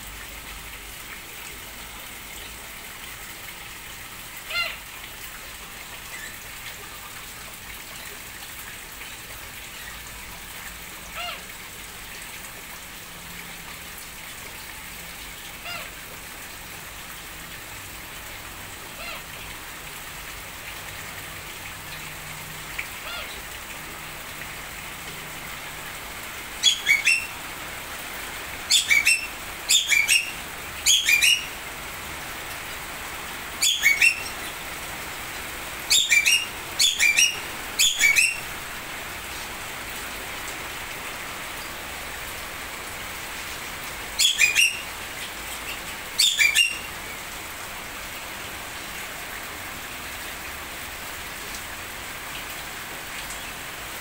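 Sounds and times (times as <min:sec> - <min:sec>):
steady rain-like hiss: 0:00.0 - 0:54.0
birds chirping: 0:26.6 - 0:27.4, 0:28.7 - 0:31.6, 0:33.6 - 0:34.6, 0:35.9 - 0:38.5, 0:44.2 - 0:44.9, 0:45.7 - 0:46.9.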